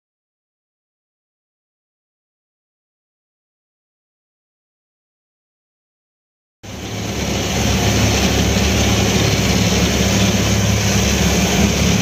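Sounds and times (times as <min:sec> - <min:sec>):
boat engine running: 0:06.6 - 0:12.0
water rushing past hull: 0:06.7 - 0:12.0.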